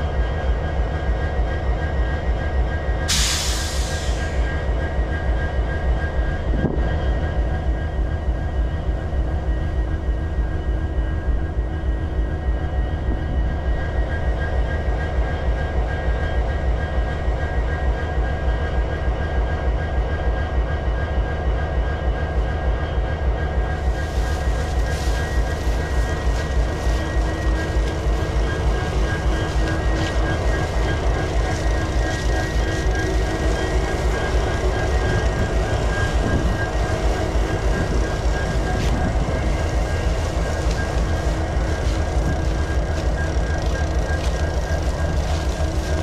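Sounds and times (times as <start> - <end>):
diesel locomotive engine throbbing: 0.0 - 46.0
freight cars rolling: 23.7 - 46.0.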